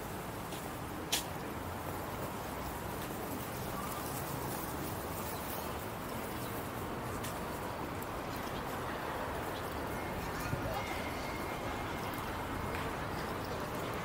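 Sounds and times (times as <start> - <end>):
outdoor background noise: 0.0 - 14.0.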